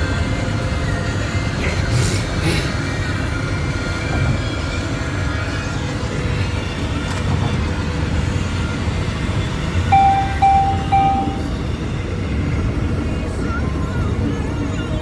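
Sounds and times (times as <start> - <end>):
car road rumble inside cabin: 0.0 - 15.0
short electronic beeps: 9.9 - 11.6.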